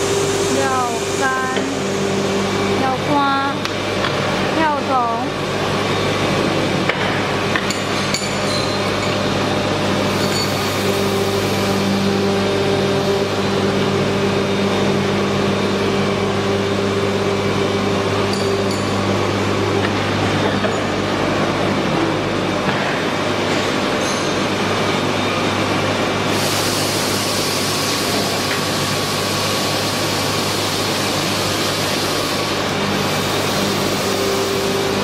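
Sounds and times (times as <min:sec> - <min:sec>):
high-pitched machine whine: 0:00.0 - 0:35.0
moulding machine humming: 0:00.0 - 0:35.0.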